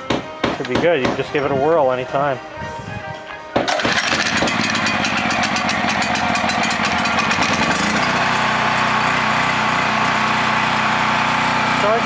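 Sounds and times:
portable generator engine running: 0:03.6 - 0:12.0.

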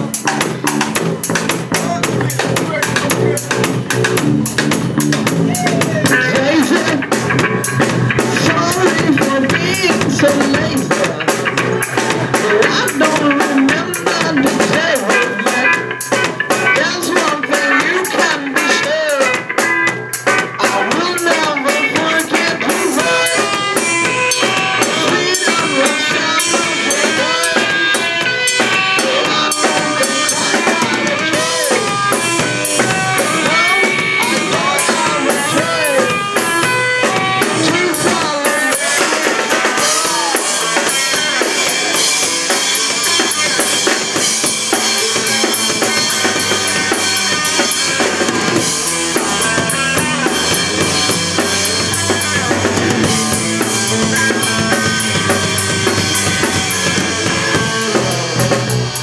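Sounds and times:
bass guitar: 0:00.0 - 0:59.0
drum kit: 0:00.0 - 0:59.0
electric guitar: 0:00.0 - 0:59.0.

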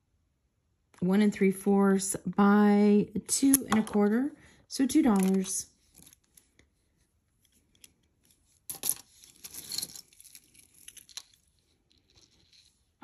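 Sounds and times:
clatter of metal and glass beads: 0:08.7 - 0:13.0.

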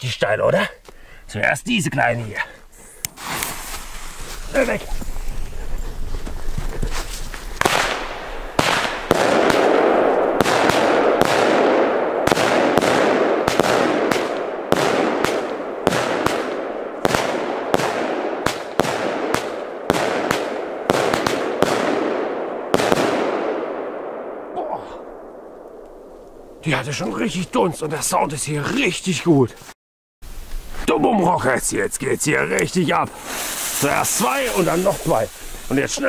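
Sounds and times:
hissing crackling rush: 0:02.8 - 0:19.6, 0:30.3 - 0:36.0
firework battery bangs: 0:07.6 - 0:23.6.

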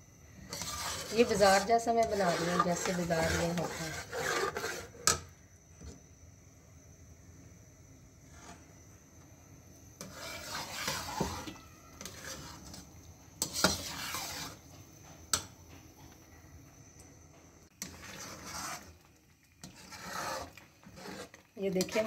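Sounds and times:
spatula scraping thick pudding: 0:00.4 - 0:05.2, 0:08.3 - 0:08.6, 0:10.0 - 0:14.6, 0:17.8 - 0:22.0.

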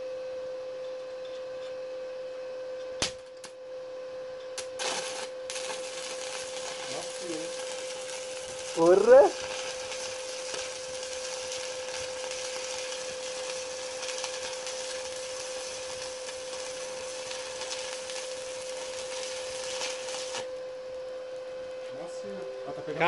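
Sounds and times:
welding arc crackling hiss: 0:04.6 - 0:20.6.

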